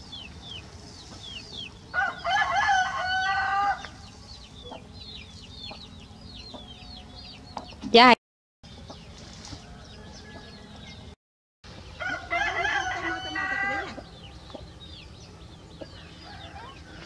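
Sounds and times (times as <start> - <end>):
rooster crowing: 1.9 - 4.0, 9.6 - 11.0, 12.0 - 14.1, 15.9 - 17.0.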